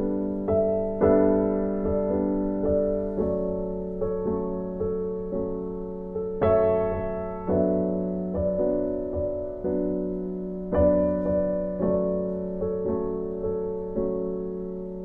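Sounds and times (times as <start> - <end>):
soft keyboard music: 0.0 - 15.0.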